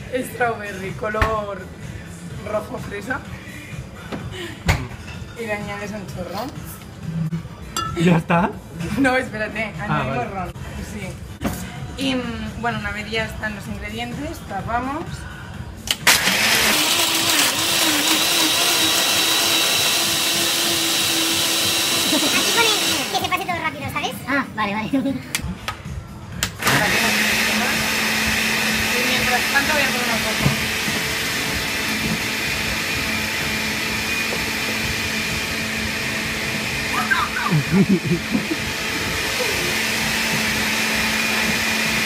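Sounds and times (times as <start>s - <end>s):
blender crushing ice: 15.9s - 23.3s, 26.5s - 42.0s.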